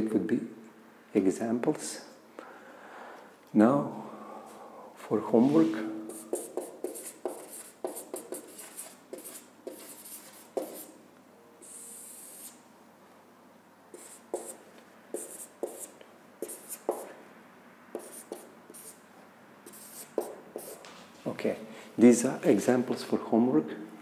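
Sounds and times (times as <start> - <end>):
marker writing on whiteboard: 6.1 - 11.0, 11.6 - 12.6, 13.9 - 17.2, 17.9 - 19.0, 19.6 - 20.8.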